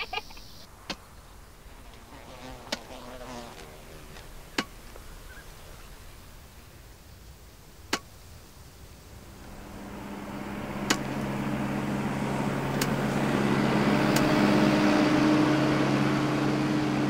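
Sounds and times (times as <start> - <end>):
insect buzzing: 0.0 - 7.1
sharp clicks: 12.7 - 13.0.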